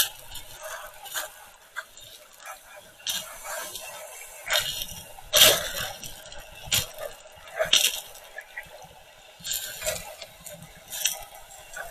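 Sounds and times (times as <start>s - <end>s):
faint hiss: 0.0s - 11.9s
underwater sloshing and bubbling: 0.0s - 11.9s.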